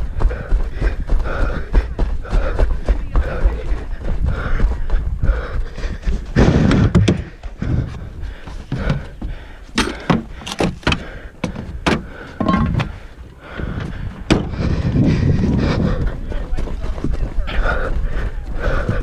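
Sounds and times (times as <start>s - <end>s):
gear clunking and knocking: 6.4s - 7.5s, 8.6s - 14.6s
car door being handled: 9.8s - 12.9s
footsteps on snow: 11.0s - 19.0s.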